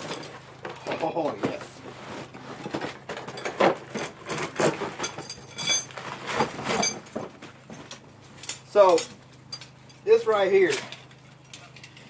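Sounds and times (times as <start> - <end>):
steel chain clinking: 3.3 - 7.2, 8.4 - 12.0.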